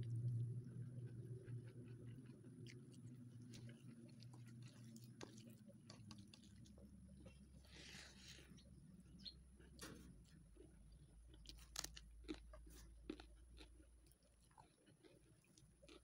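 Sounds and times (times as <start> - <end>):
faint chewing: 0.0 - 16.0
crisp crunch of a raw vegetable: 2.6 - 8.8, 11.3 - 16.0.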